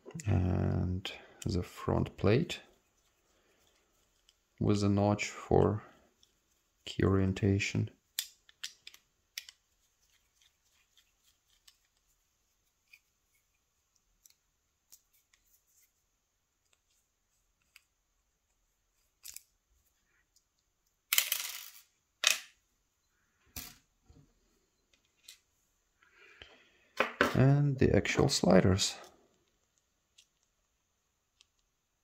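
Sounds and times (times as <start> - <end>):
small metal parts clicking: 19.2 - 19.5.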